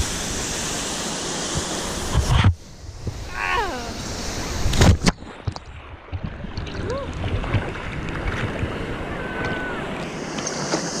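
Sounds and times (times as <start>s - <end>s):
wind on microphone: 1.5s - 11.0s
water splashing: 3.2s - 11.0s.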